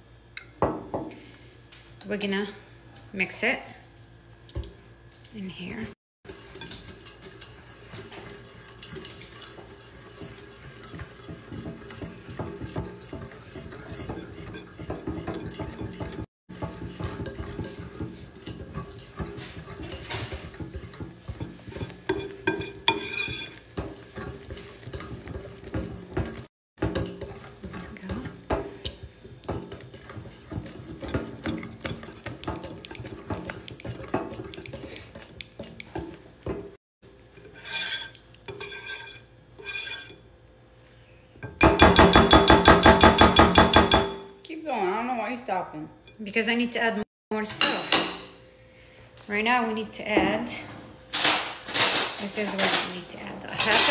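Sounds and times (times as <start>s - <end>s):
whisk scraping glass bowl: 6.3s - 36.8s, 37.4s - 40.2s.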